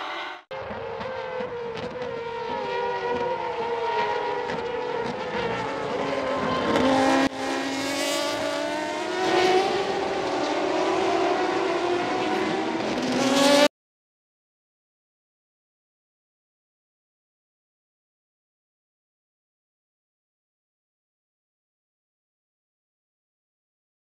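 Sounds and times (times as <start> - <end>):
race car engines passing: 0.0 - 13.7.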